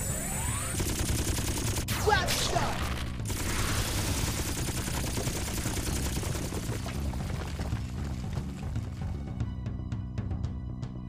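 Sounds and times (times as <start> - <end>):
rapid laser blasts: 0.0 - 6.9
falling zaps: 1.8 - 6.8.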